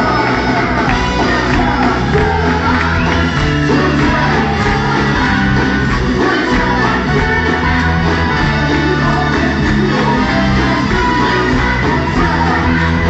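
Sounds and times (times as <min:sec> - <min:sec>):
live blues-rock band: 0:00.0 - 0:13.0
people singing: 0:00.0 - 0:13.0.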